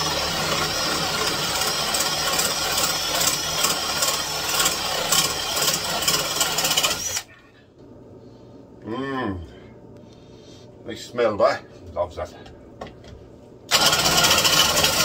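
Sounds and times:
cordless drill boring into wall: 0:00.0 - 0:07.2, 0:13.7 - 0:15.0.

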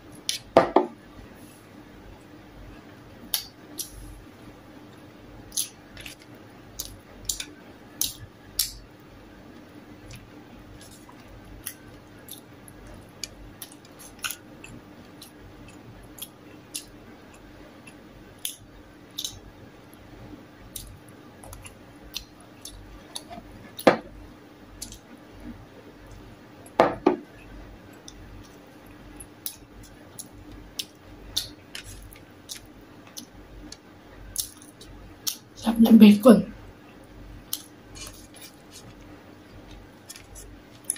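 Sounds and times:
faint steady hum: 0:00.0 - 0:40.9
crunching and chewing: 0:04.9 - 0:08.8, 0:09.5 - 0:19.4, 0:20.7 - 0:23.9, 0:28.0 - 0:35.5, 0:37.4 - 0:40.9.

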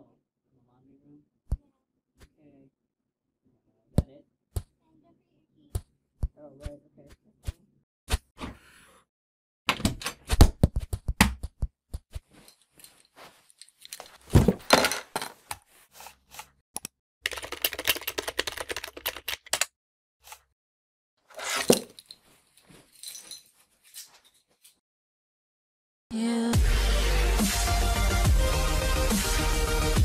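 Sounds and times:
computer keyboard typing: 0:17.3 - 0:19.7.

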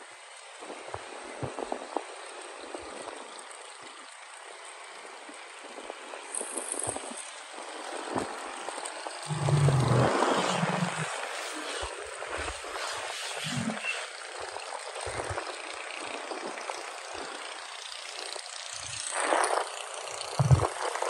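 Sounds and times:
low buffeting thumps: 0:20.4 - 0:20.7.

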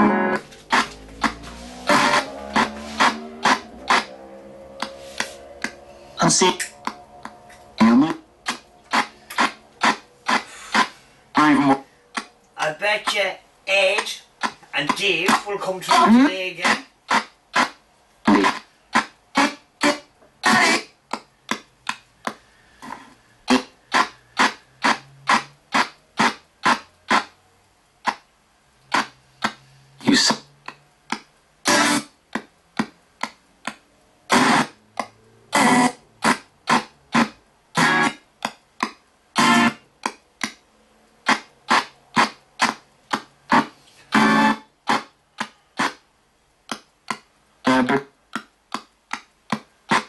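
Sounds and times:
radio sweeping through stations: 0:00.0 - 0:17.7, 0:41.3 - 0:45.1
chopped bursts of radio sound: 0:07.8 - 0:20.9.

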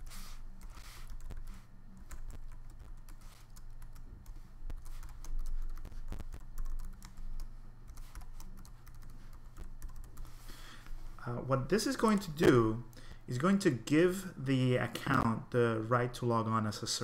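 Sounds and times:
typing on computer keyboard: 0:04.7 - 0:10.2.

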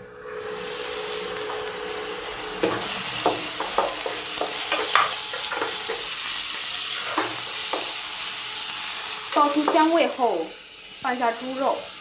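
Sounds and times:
aromatics sizzling in hot oil: 0:00.3 - 0:12.0
wooden spatula scraping a pan: 0:02.6 - 0:08.0.

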